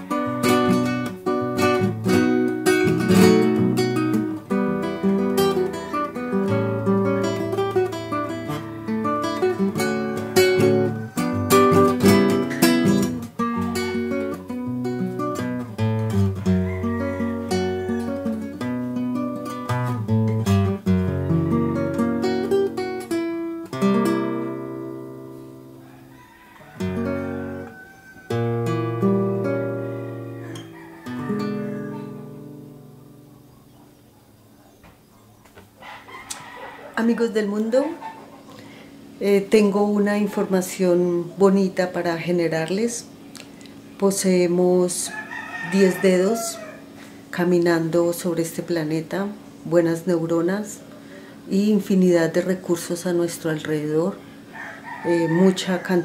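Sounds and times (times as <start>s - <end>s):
acoustic guitar strumming and picking: 0.0s - 26.1s, 26.8s - 33.6s.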